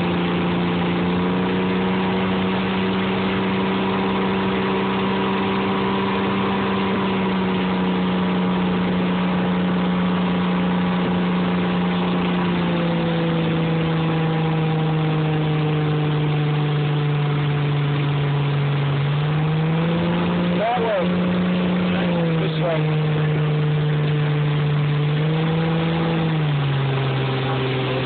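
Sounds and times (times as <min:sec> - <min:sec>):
motorboat engine running: 0:00.0 - 0:28.0
rush of boat wake and spray: 0:00.0 - 0:28.0.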